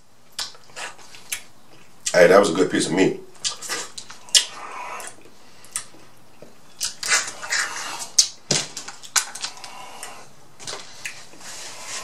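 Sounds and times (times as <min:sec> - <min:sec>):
man chewing with mouth clicks: 0:00.3 - 0:02.2, 0:03.4 - 0:10.3.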